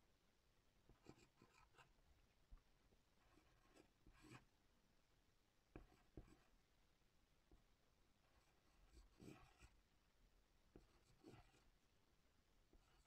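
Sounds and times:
pencil writing on paper: 0.9s - 1.9s, 3.2s - 4.5s, 5.8s - 6.6s, 8.2s - 9.8s, 10.7s - 11.7s, 12.7s - 13.0s.

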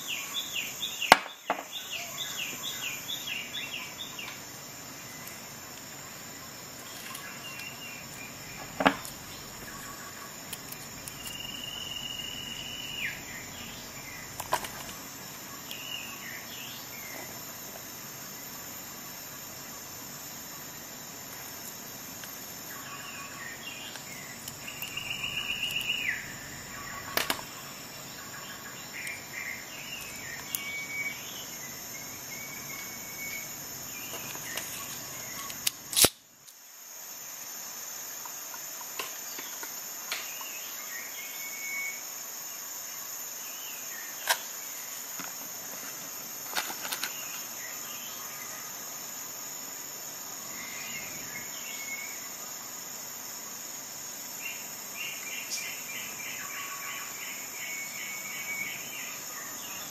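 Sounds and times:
birds chirping: 0.0s - 35.6s, 54.4s - 59.9s
insects chorus: 0.0s - 59.9s.

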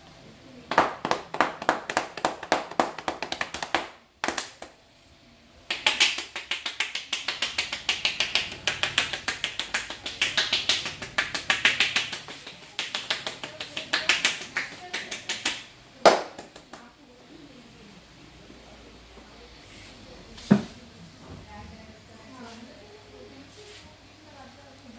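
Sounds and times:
cupped hands slapping a head: 0.7s - 4.8s, 5.7s - 16.9s.

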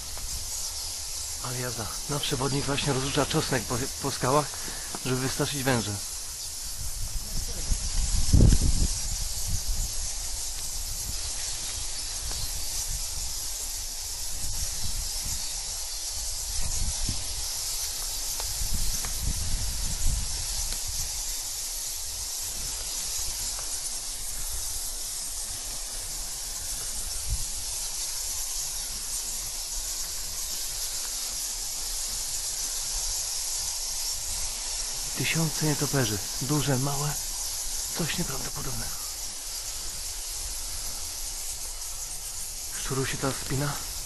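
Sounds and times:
steady high hiss: 0.0s - 44.0s
wind rumbling on microphone: 6.0s - 35.2s.

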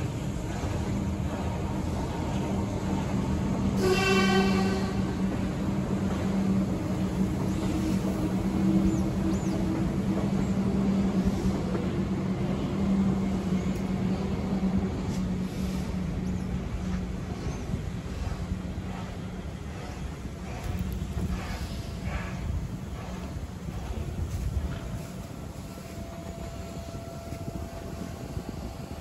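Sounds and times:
train carriages rumbling on rails: 0.0s - 29.0s
train whistle: 3.8s - 5.3s.

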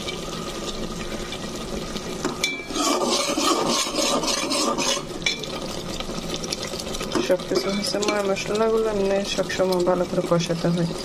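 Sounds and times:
curry bubbling and sizzling: 0.0s - 11.0s
metal spatula scraping a pot: 2.4s - 5.8s.

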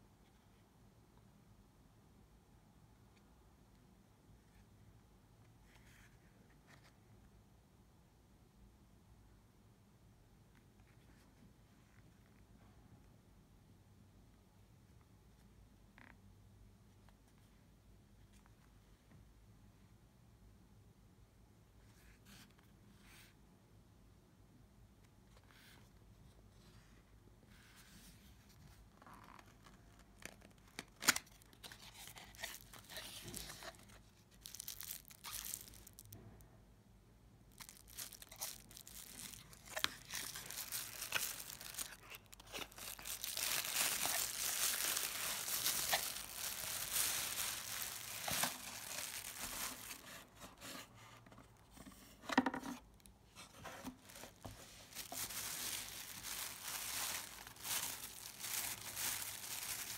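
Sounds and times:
plastic bag crinkling: 31.2s - 36.2s, 37.5s - 50.2s, 54.0s - 59.9s
cardboard rustling and scraping: 31.6s - 36.2s, 37.6s - 51.2s, 53.4s - 59.9s.

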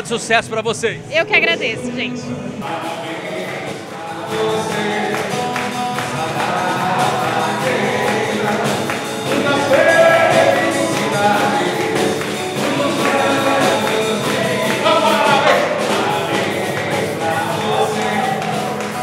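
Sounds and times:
hand drum: 5.1s - 19.0s.

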